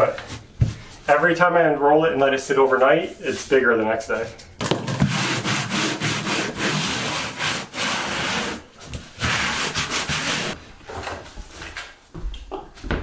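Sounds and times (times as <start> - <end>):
hands scraping plastic membrane: 4.6 - 10.6.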